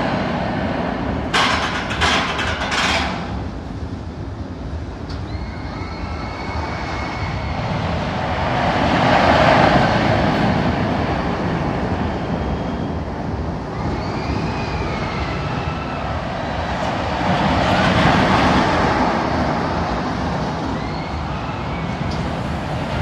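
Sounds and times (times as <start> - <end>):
rollercoaster rumbling on track: 0.0 - 23.0
high drawn-out squeals: 5.2 - 8.2, 13.7 - 16.6, 20.6 - 22.7.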